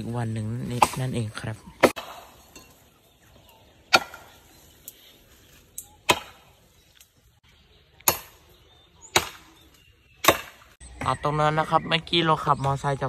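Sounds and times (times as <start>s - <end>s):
axe chopping wood: 0.7s - 1.1s, 1.8s - 2.4s, 3.9s - 4.4s, 6.0s - 6.5s, 8.0s - 8.5s, 9.1s - 9.5s, 10.2s - 10.8s.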